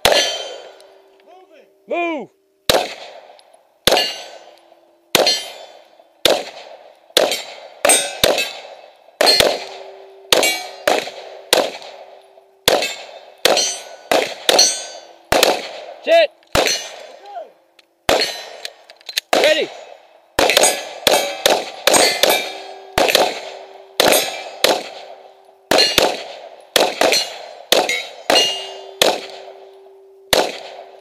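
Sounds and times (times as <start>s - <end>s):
pistol shots echoing: 0.0s - 1.0s, 2.7s - 17.2s, 18.1s - 31.0s
steady low ring: 7.3s - 10.9s, 12.0s - 15.3s, 19.8s - 31.0s.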